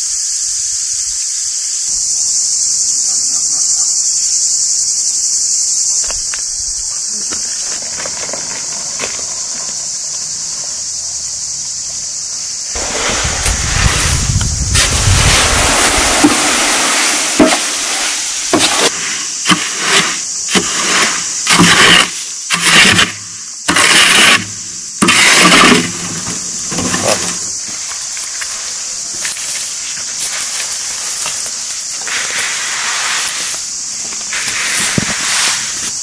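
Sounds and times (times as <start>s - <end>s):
high insect drone: 0.0s - 36.0s
soil pouring onto a heap: 12.8s - 23.0s
shovel scraping soil: 12.8s - 27.7s, 31.3s - 36.0s
wheelbarrow rolling: 12.8s - 28.1s.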